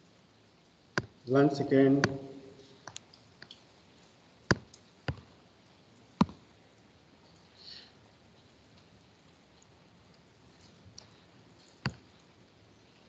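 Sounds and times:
soft rustle: 7.2s - 13.0s.

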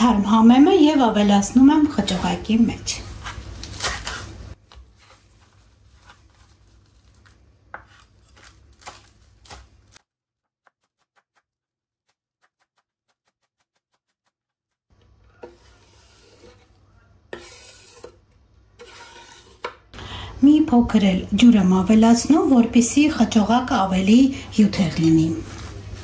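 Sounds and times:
knife chopping on wooden board: 7.7s - 10.0s.

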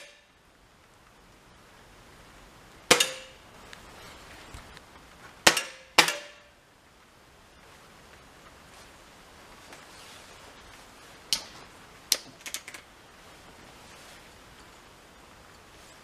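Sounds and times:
air rifle shots: 2.9s - 3.4s, 5.4s - 6.5s.

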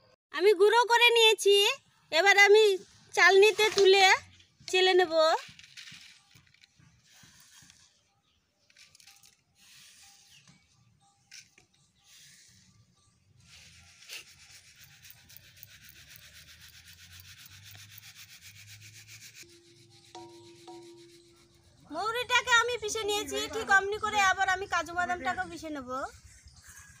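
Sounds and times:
powder rubbing in sieve: 13.4s - 22.1s.

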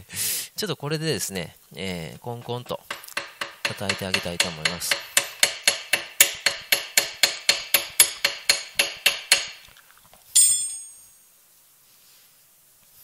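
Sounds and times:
metal-on-metal tapping: 2.4s - 9.7s
ringing metal clank: 10.4s - 11.2s.

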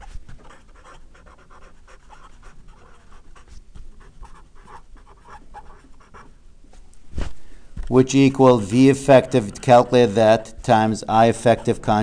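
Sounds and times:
marker pen scratching on paper: 0.0s - 6.4s, 11.2s - 12.0s.

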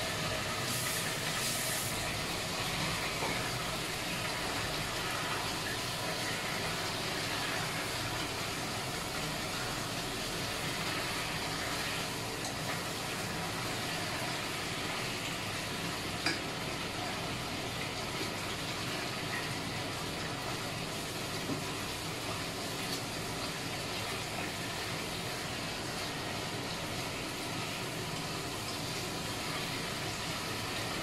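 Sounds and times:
chicken sizzling in a pot: 0.0s - 31.0s
exhaust fan noise: 0.0s - 31.0s.

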